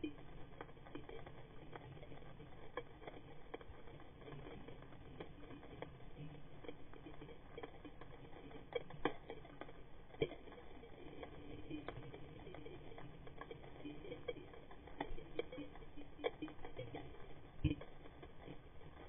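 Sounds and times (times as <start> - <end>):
faint low water hiss: 0.0 - 19.0
snapping shrimp crackle underwater: 0.0 - 19.0.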